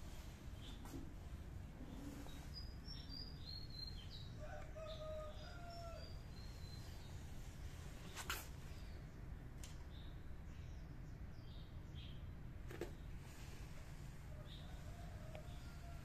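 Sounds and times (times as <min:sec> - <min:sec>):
small birds chirping: 0:00.4 - 0:01.0, 0:01.7 - 0:13.6
distant rooster crowing: 0:04.2 - 0:06.3, 0:14.2 - 0:16.0.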